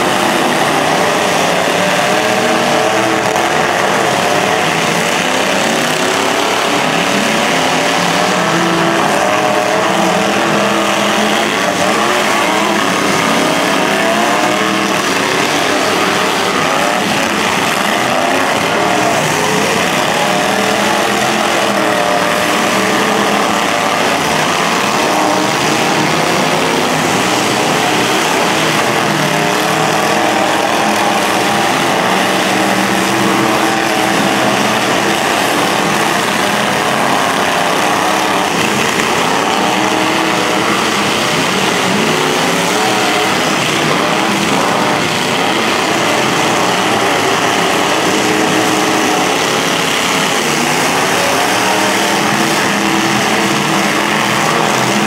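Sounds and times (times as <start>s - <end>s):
truck engines revving: 0.0s - 55.0s.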